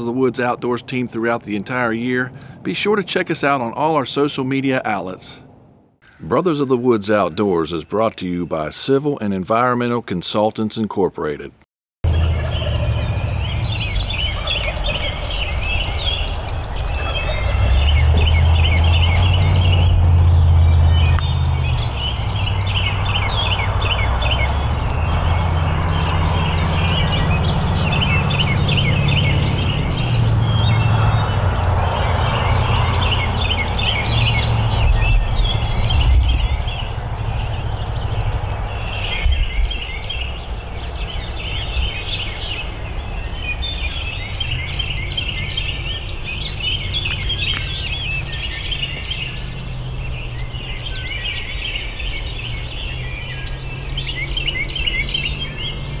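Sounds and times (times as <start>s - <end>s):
birds calling: 0.0s - 10.5s, 11.2s - 56.0s
low rumble: 12.0s - 42.0s.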